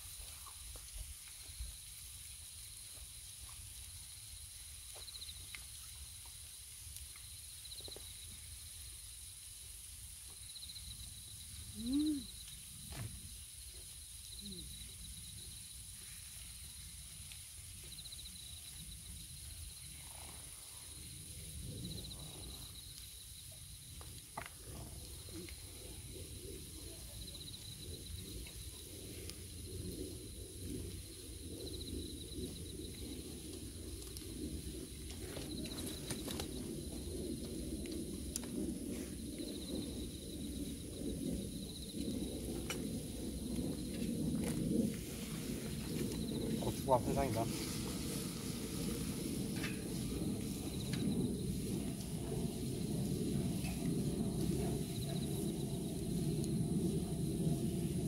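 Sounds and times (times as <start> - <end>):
night insects chirping: 0.0 - 58.0
faint low rumble: 23.7 - 58.0.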